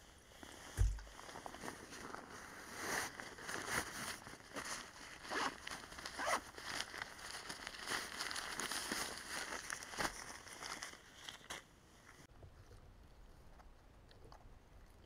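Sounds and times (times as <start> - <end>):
fabric rustling and crinkling: 0.3 - 12.3.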